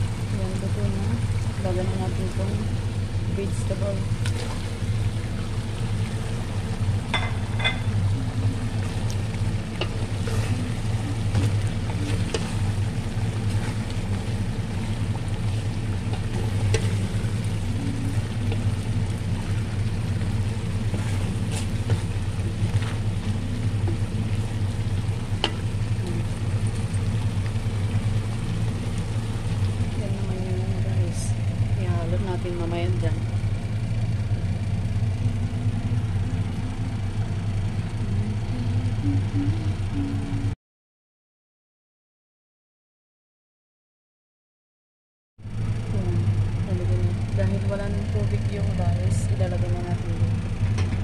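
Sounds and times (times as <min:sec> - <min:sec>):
low mechanical hum: 0:00.0 - 0:40.6, 0:45.4 - 0:51.0
utensils clinking against pot: 0:07.1 - 0:08.0.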